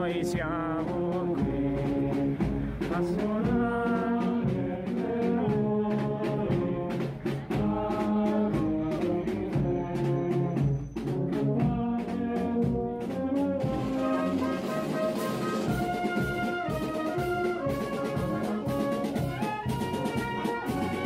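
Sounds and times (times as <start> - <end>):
brass band playing: 0.0 - 21.0.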